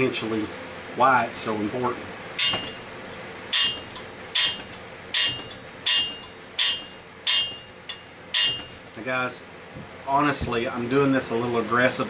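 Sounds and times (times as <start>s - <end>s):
metal valve clacking on seat: 2.4s - 9.0s.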